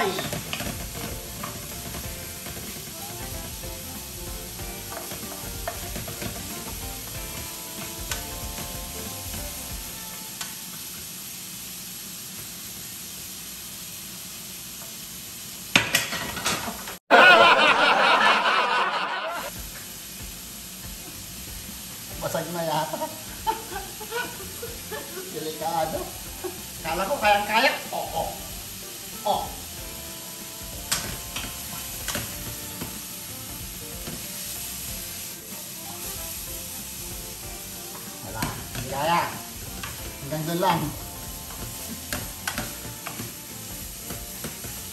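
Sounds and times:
spatula scraping a pan: 0.0s - 10.0s
meat sizzling in a pan: 0.0s - 17.0s, 17.6s - 44.9s.

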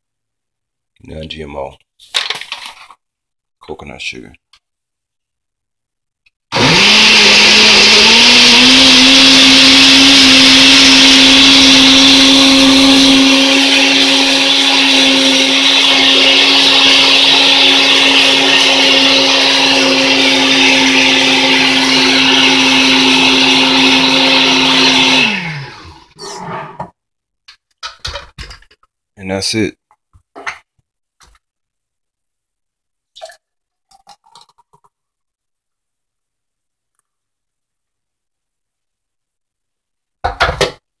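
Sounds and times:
blender motor running: 6.5s - 26.8s.

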